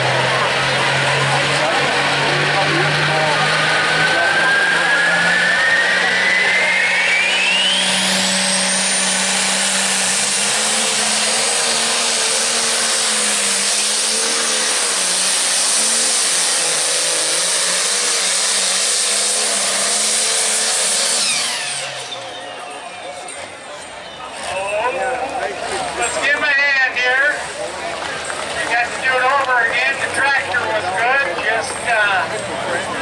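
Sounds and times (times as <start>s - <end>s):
diesel engine roaring at full throttle: 0.0s - 33.0s
turbo whine: 0.4s - 25.3s.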